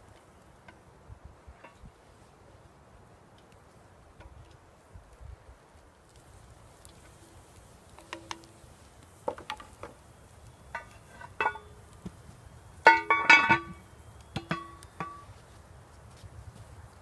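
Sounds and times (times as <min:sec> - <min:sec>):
metal clinks on cast iron pot: 0:08.0 - 0:08.6, 0:10.7 - 0:11.9, 0:12.8 - 0:15.3.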